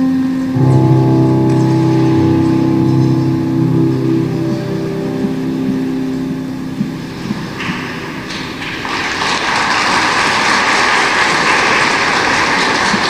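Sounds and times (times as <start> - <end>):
applause: 8.3 - 13.0.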